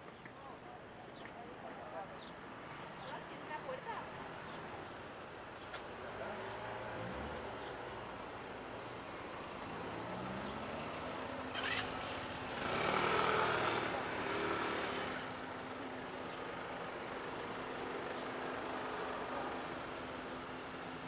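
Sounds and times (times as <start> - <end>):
vehicle passing close by: 9.4 - 15.4.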